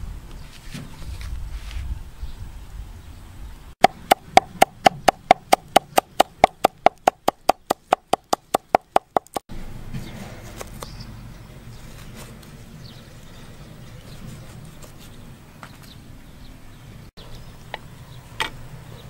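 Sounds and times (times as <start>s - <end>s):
knife chopping on wooden board: 3.8s - 9.4s.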